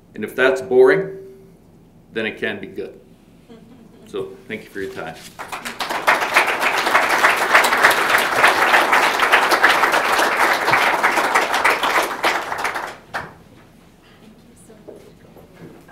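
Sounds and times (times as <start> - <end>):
audience applauding: 5.2 - 13.4.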